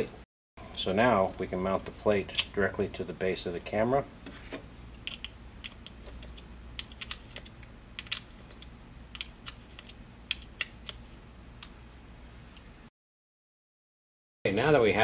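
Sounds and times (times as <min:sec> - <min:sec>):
low steady hum: 0:00.0 - 0:12.9
clicks and taps of screw turning: 0:05.0 - 0:11.8.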